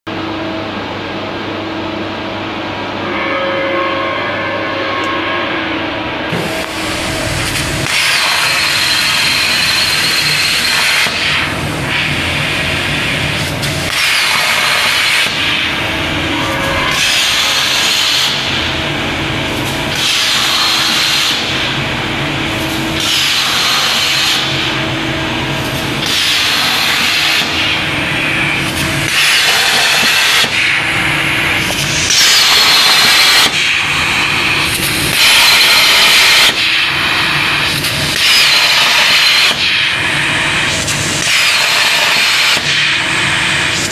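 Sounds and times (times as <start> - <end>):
plasma torch hissing arc: 6.4 - 9.4, 10.5 - 15.8, 16.9 - 18.6, 19.9 - 21.7, 29.0 - 30.7, 40.6 - 43.9.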